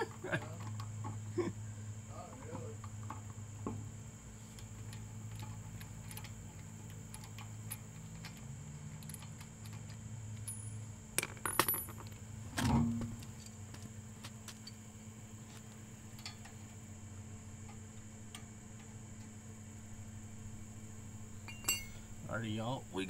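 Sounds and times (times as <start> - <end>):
steady low hum: 0.0 - 23.0
loud metal clank with ring: 21.4 - 22.2
metal tools clinking: 21.4 - 22.2.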